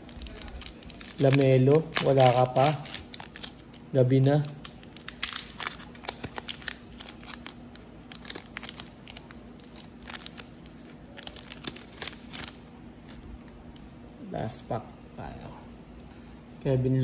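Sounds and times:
foil wrapper crinkling and tearing: 0.0 - 13.3.

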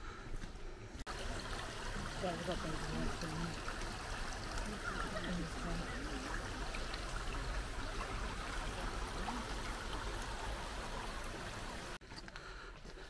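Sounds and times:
stream running over stones: 1.1 - 12.0.

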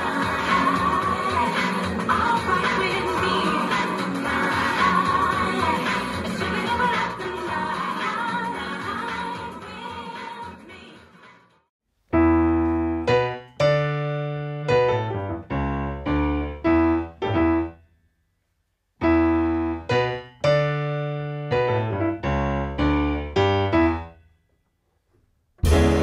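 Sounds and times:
piano chords: 12.1 - 17.8, 19.0 - 24.2, 25.6 - 26.0.

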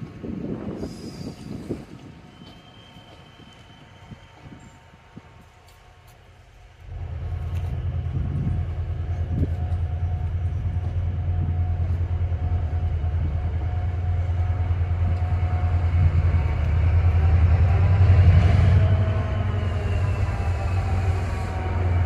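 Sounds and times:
train rumbling: 0.0 - 22.0.

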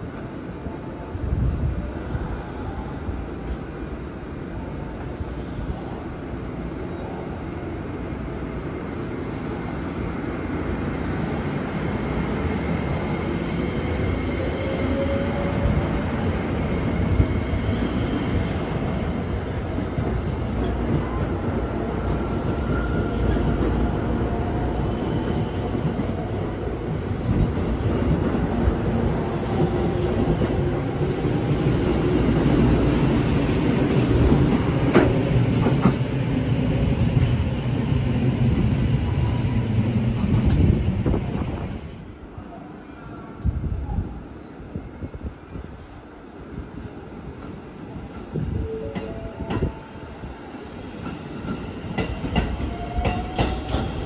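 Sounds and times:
train wheels rumbling: 11.0 - 42.0, 47.2 - 54.0.

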